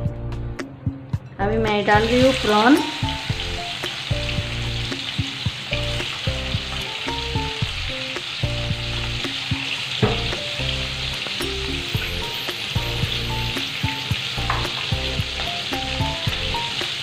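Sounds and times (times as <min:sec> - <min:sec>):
background music: 0:00.0 - 0:17.0
prawns sizzling in oil: 0:01.6 - 0:17.0.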